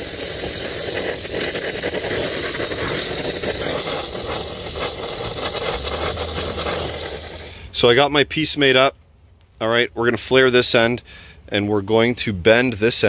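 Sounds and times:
torch flame hissing: 0.0 - 7.9.

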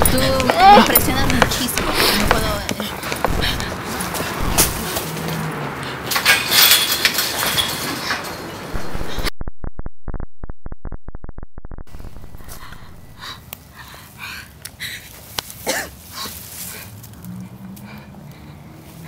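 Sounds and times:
person breathing raggedly: 1.8 - 5.0, 12.4 - 15.1
muffled low pulsing sound: 3.3 - 3.8, 4.4 - 4.9, 8.8 - 13.2.

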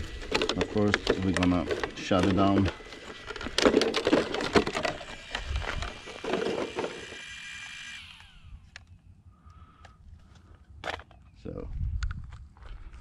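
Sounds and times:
handling clicks and knocks: 0.2 - 6.9
electronics whine: 2.6 - 9.8.

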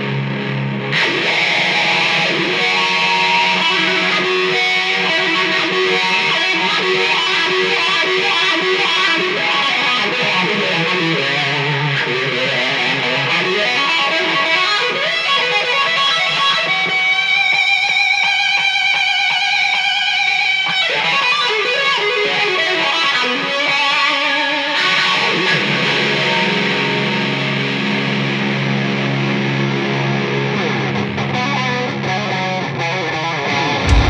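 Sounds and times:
rock band playing loud: 0.0 - 16.3, 33.4 - 34.0
fuzz-distorted electric guitars: 0.0 - 34.0.

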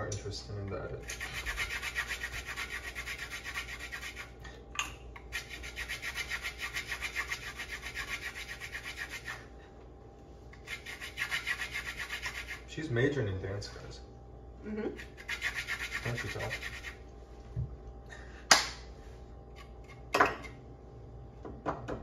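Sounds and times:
grater rasping on citrus: 1.0 - 4.4, 5.2 - 9.5, 10.6 - 12.7, 14.9 - 17.0.

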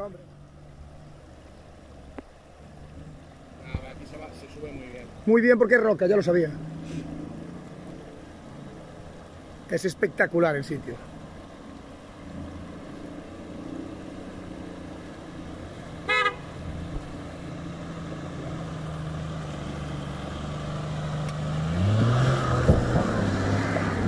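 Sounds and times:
car engine pulling: 0.0 - 24.0
water splashing around wheels: 0.0 - 24.0
car horn toot: 16.0 - 16.6.

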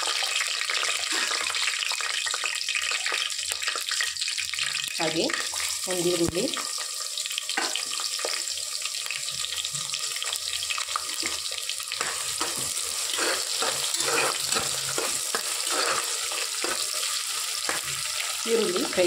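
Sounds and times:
onions sizzling in hot oil: 0.0 - 19.0
metal spoon stirring: 11.2 - 19.0.

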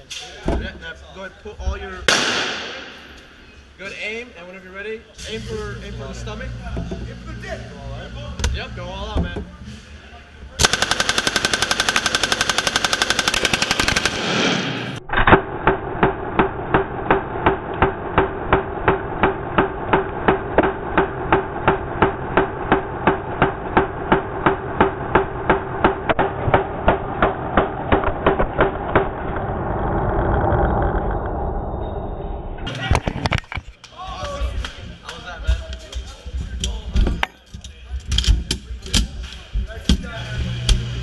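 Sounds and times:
machine gun firing automatic burst: 10.6 - 15.0
slowed down gunshots: 10.6 - 31.4
low rumble: 14.1 - 33.4.

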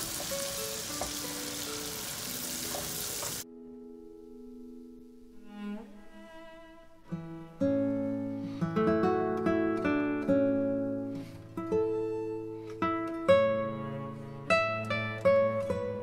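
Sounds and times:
plucked guitar music: 0.0 - 6.4, 7.0 - 16.0.

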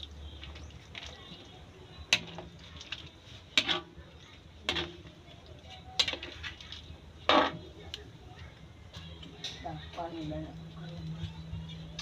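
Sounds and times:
ladle scraping metal wok: 2.1 - 4.0, 4.6 - 5.1, 6.0 - 7.6.

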